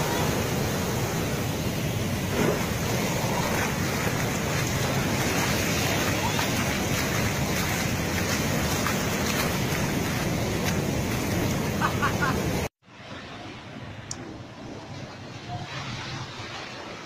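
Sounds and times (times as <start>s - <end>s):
waves breaking and foaming: 0.0s - 17.0s.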